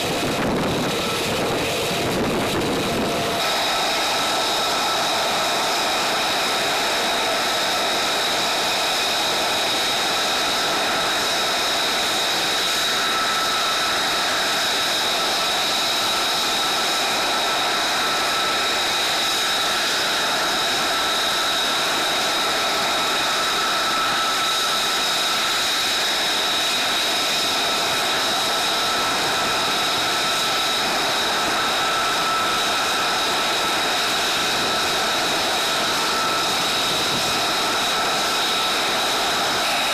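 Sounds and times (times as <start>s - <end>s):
turbine engine whine: 0.0s - 39.9s.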